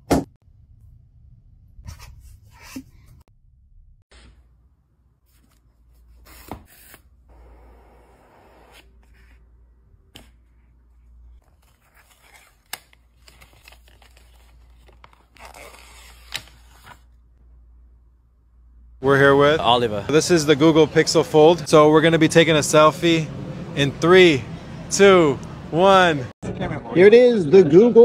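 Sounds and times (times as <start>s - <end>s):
cardboard packaging rustling: 11.4s - 17.1s.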